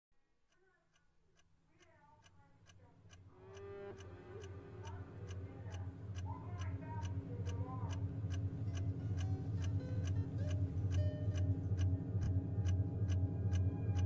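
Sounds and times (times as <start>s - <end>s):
steady ticking: 0.4s - 14.0s
low droning bass: 3.4s - 14.0s.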